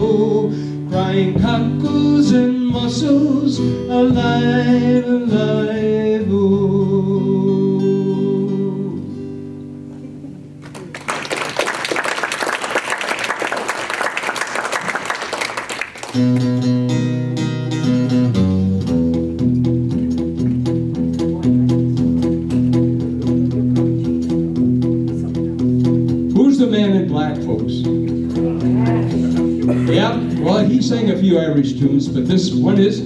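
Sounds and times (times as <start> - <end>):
acoustic guitar strumming: 0.0 - 10.7, 16.1 - 33.0
audience applause: 10.6 - 16.5.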